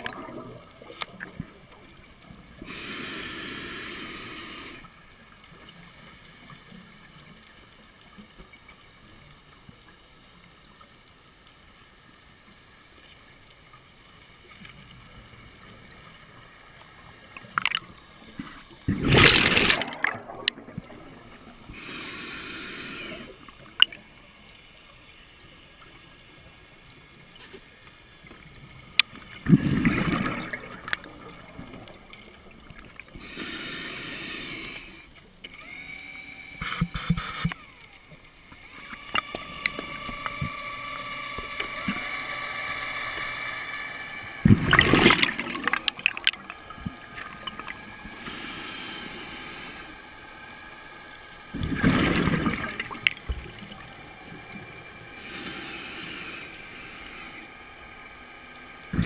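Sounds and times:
exhaled bubbles gushing underwater: 0:00.0 - 0:01.8, 0:18.9 - 0:21.8, 0:29.4 - 0:33.2, 0:44.4 - 0:48.2, 0:51.5 - 0:54.8
hissing inhalations through regulator: 0:02.6 - 0:06.0, 0:19.2 - 0:25.6, 0:32.8 - 0:35.9, 0:36.5 - 0:37.9, 0:45.3 - 0:53.2, 0:54.0 - 0:59.0.

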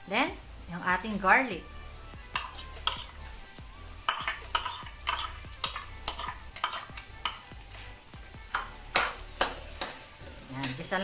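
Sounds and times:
faint sizzle of oil: 0:00.0 - 0:11.0
metal spatula scraping ceramic bowl: 0:02.4 - 0:03.2, 0:04.1 - 0:07.6.

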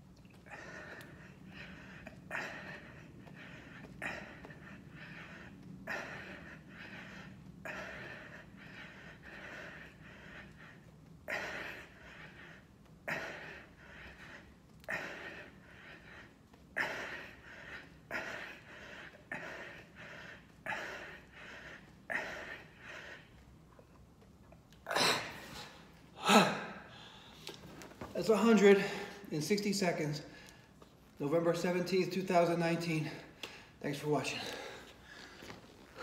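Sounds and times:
man breathing hard: 0:00.3 - 0:24.0, 0:24.8 - 0:31.2, 0:32.8 - 0:36.0.

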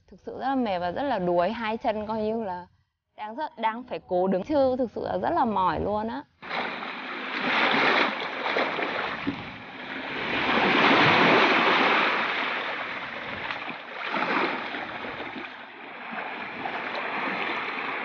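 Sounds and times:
small waves washing in: 0:06.4 - 0:18.0.

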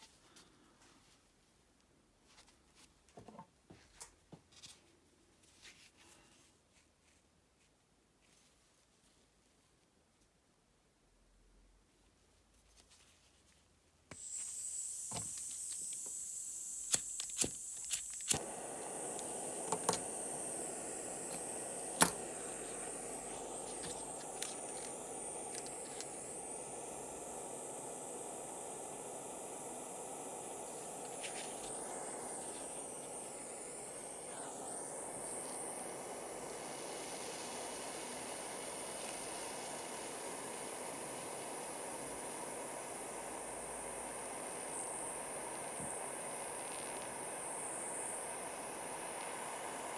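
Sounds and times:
gas torch hissing: 0:14.1 - 0:49.9.

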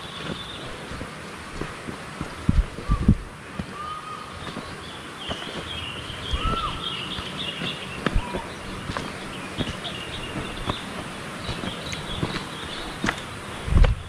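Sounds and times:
footsteps on trail: 0:00.0 - 0:14.0
clear arched bird whistle: 0:03.7 - 0:10.9.

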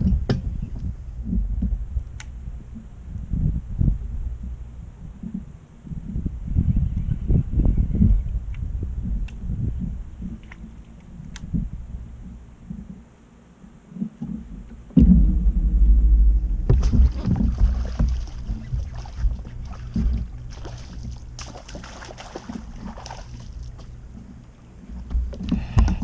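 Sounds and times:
heavy low rumble: 0:00.0 - 0:10.4, 0:14.3 - 0:21.4.

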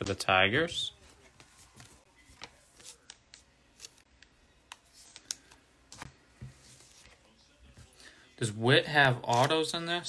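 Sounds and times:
trading cards clicking and rustling: 0:01.4 - 0:07.2, 0:09.2 - 0:09.8.

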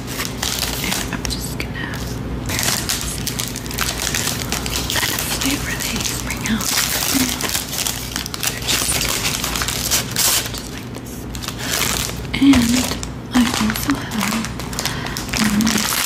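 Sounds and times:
foil wrapper crinkling: 0:00.0 - 0:16.0
soft speech: 0:04.9 - 0:07.5, 0:12.3 - 0:14.6, 0:15.3 - 0:16.0.

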